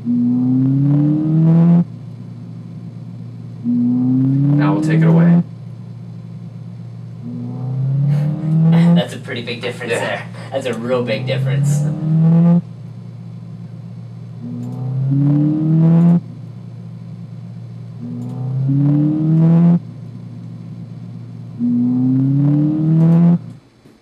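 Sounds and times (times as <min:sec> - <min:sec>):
car engine revving: 0:00.0 - 0:23.7.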